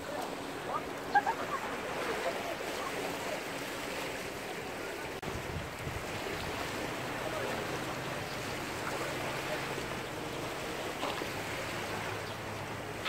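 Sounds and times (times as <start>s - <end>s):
small waves lapping at shore: 0.0s - 13.0s
wind on microphone: 5.2s - 7.0s.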